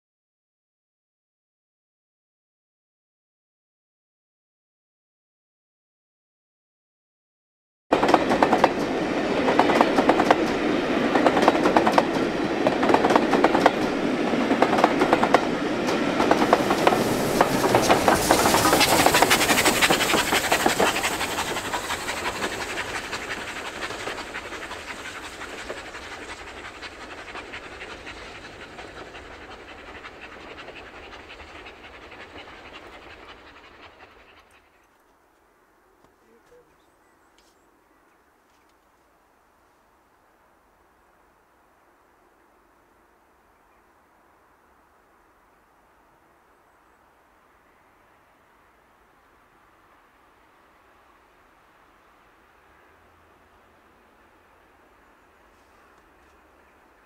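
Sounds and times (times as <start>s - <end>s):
steam train passing: 7.9s - 35.0s, 44.5s - 57.0s
wheels clattering over rail joints: 14.6s - 28.2s.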